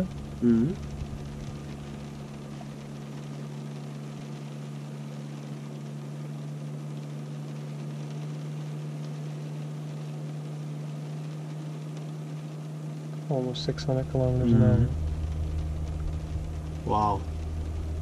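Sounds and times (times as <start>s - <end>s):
car cooling fan noise: 0.0s - 18.0s
low steady tones: 7.7s - 18.0s.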